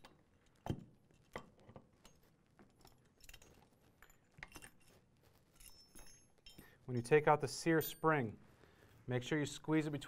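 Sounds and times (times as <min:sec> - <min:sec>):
metal parts clicking and knocking: 0:00.0 - 0:07.1.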